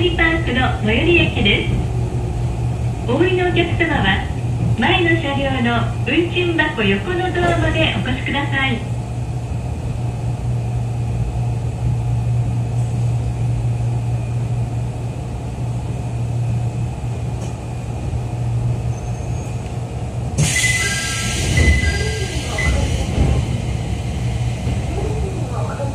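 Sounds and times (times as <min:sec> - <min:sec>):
train hum and rolling rumble: 0:00.0 - 0:25.9.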